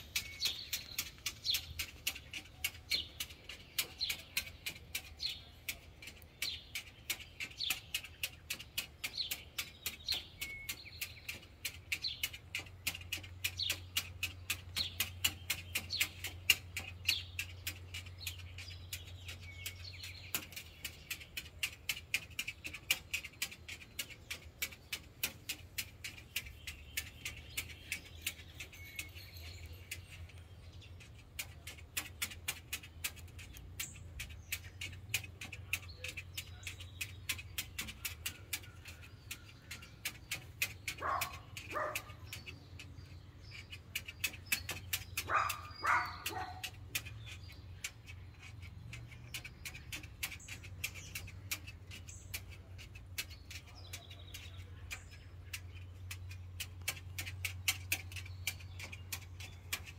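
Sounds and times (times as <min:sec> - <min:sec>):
bird claws tapping on glass: 0:00.0 - 0:59.9.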